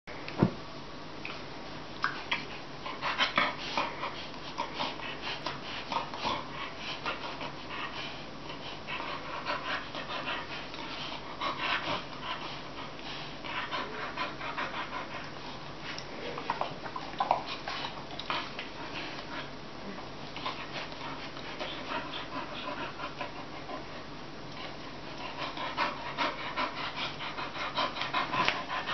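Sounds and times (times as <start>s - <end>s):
dogs breathing: 20.4s - 28.9s.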